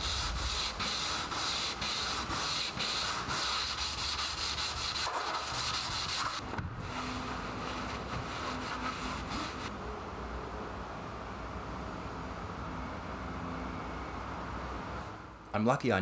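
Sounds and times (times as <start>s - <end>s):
sandpaper rasping on steel: 0.0s - 9.7s.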